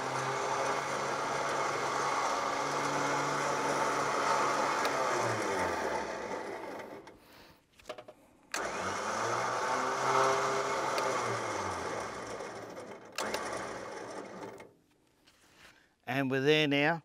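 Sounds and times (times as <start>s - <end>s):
electric winch whirring: 0.0s - 7.3s, 8.5s - 14.7s.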